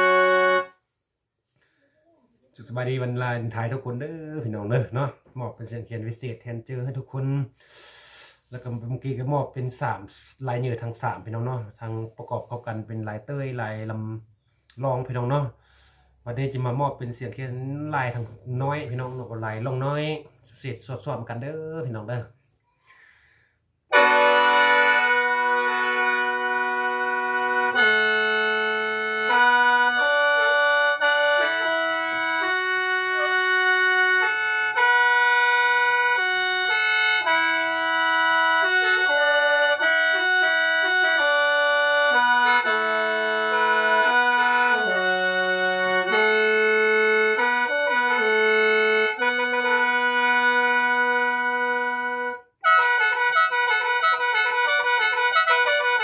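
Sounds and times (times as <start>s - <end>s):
mouth organ melody with drone: 0.0s - 0.8s, 23.9s - 56.0s.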